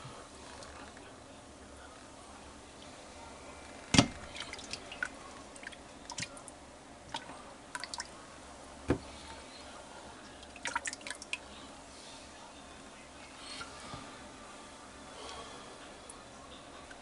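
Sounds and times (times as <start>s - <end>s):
wet squishing and dripping: 3.9s - 8.1s, 10.3s - 11.4s.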